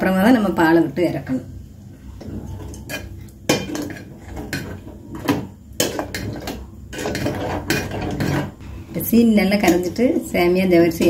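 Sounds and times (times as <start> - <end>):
ladle scraping against pot: 2.1 - 8.7.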